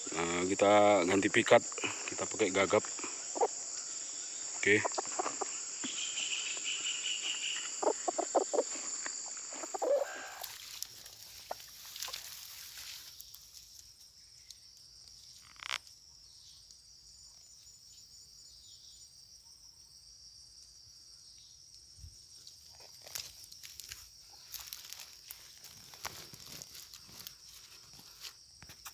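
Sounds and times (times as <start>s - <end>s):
insect drone: 0.0s - 28.9s
rustling in undergrowth: 4.6s - 14.1s, 22.4s - 28.9s
rooster calling: 7.8s - 8.8s, 9.5s - 10.6s.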